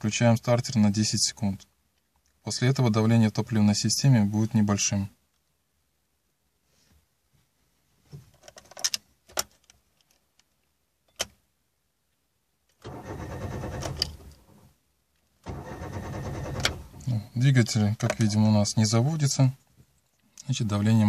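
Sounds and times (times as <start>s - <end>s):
starter motor cranking engine: 12.9s - 14.2s, 15.4s - 17.1s.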